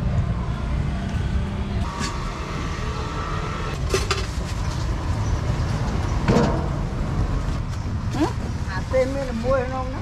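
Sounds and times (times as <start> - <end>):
street traffic rumble: 0.0 - 10.0.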